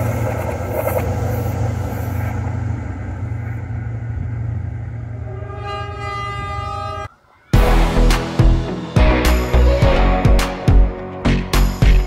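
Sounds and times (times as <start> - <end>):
train wheel and rail noise: 0.0 - 7.5
diesel train engine drone: 0.0 - 11.6.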